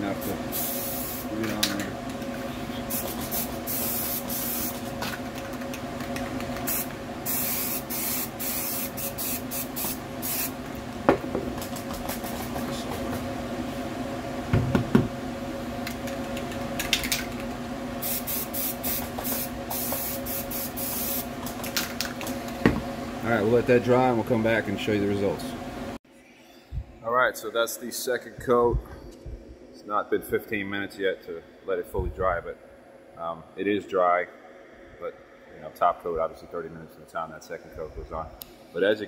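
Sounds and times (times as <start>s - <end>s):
steady hum: 0.0s - 39.0s
aerosol can spraying: 0.5s - 1.3s, 2.9s - 4.8s, 6.6s - 10.6s, 18.0s - 21.3s.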